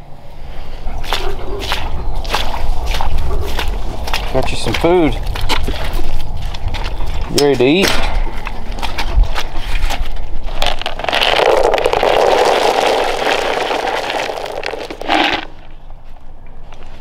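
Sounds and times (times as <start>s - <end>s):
dry kibble pouring into pan: 10.6s - 15.5s.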